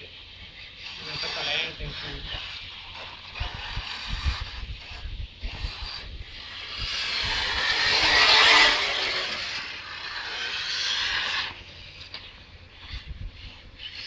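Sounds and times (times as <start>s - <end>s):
radio-controlled car passing: 0.0s - 14.0s.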